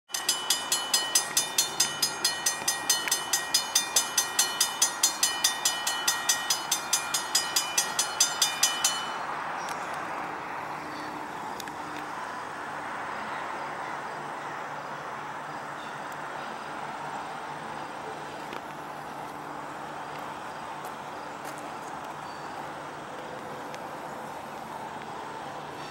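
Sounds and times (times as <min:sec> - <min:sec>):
crossing bell ringing rapidly: 0:00.1 - 0:09.5.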